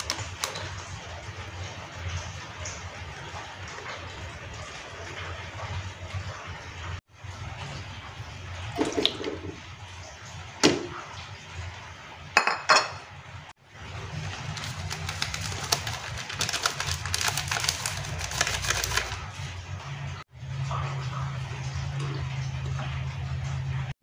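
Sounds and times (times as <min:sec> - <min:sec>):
seasoning crackling onto meat: 0:13.9 - 0:19.3.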